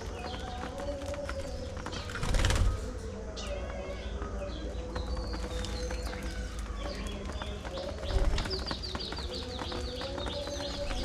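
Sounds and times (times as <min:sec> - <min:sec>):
beaks pecking seed in metal tray: 0:04.0 - 0:11.0.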